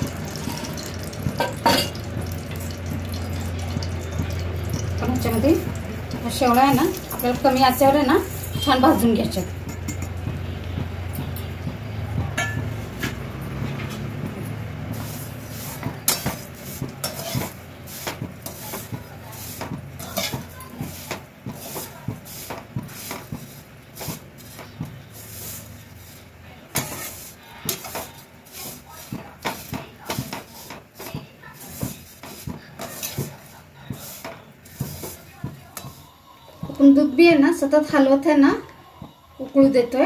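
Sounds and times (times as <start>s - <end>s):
spatula scraping metal pan: 14.9s - 38.2s.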